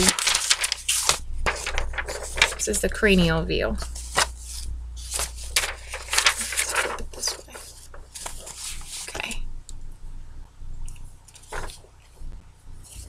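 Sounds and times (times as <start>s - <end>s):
paper rustling: 0.0s - 2.9s, 3.8s - 9.4s, 11.3s - 12.0s
low electrical hum: 0.0s - 13.0s.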